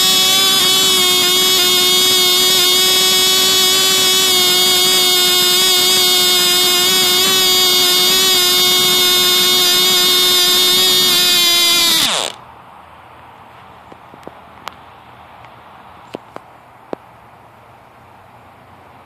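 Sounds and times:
engine spinning down: 0.0s - 12.4s
model engine high-pitched buzz: 0.0s - 12.4s.

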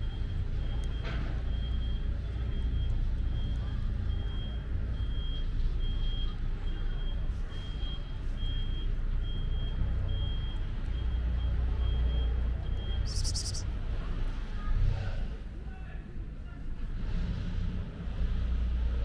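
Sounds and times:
reversing alarm beeping: 0.0s - 13.6s.

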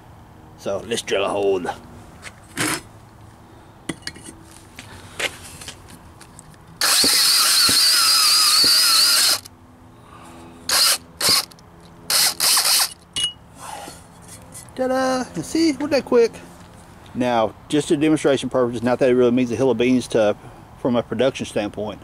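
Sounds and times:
drill whining into steel: 6.8s - 9.5s, 10.7s - 13.0s.

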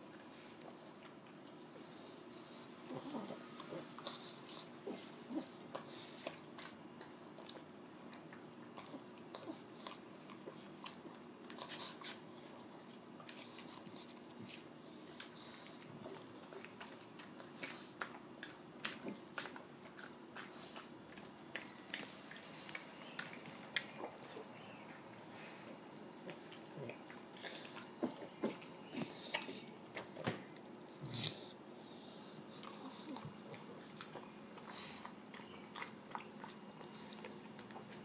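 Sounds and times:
dog chewing watermelon: 0.0s - 38.0s.

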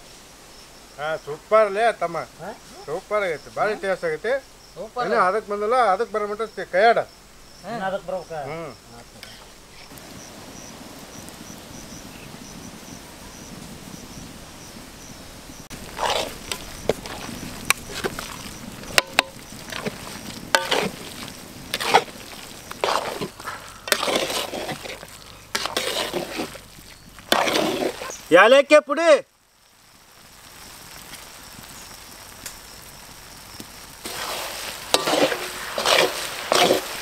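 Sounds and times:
faint cricket chirping: 0.0s - 37.0s
steady hiss: 0.0s - 37.0s
metal utensil scraping a pan: 15.9s - 28.2s, 34.0s - 37.0s.

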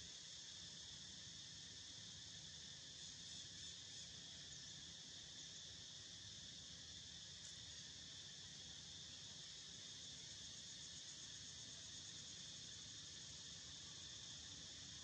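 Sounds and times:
faint insect chorus: 0.0s - 15.0s.

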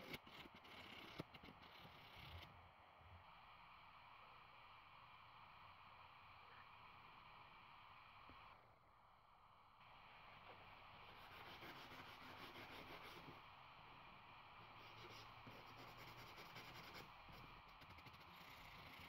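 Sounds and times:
sandpaper scratching steel blade: 11.2s - 13.3s.

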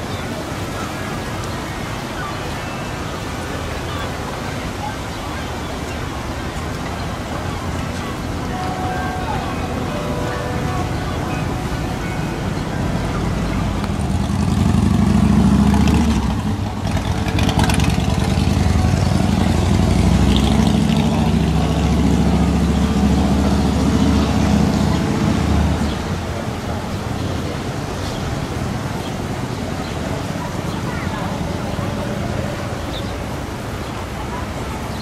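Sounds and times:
vehicle engine running: 7.5s - 26.0s.

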